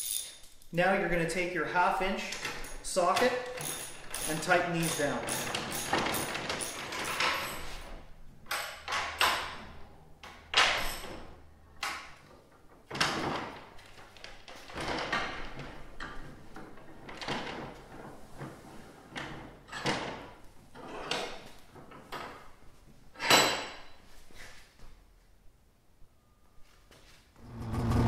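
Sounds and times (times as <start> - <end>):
ratchet tightening nuts: 3.4 - 7.4.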